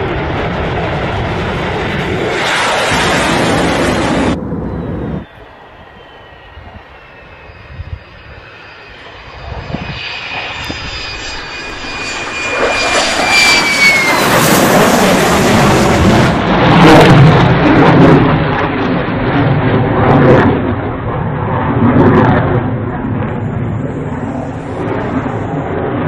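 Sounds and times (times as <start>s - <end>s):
fighter jet engine roar: 0.0s - 26.0s
high whine falling in pitch: 2.1s - 17.5s.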